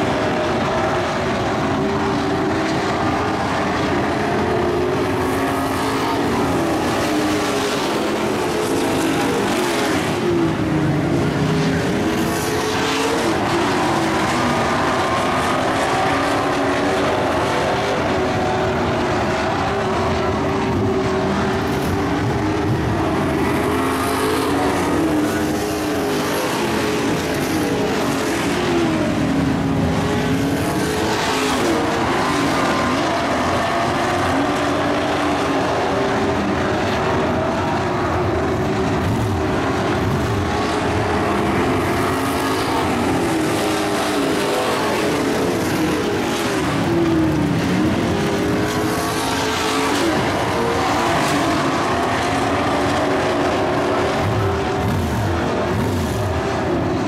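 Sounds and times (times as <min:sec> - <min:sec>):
race truck engines passing: 0:00.0 - 0:57.0.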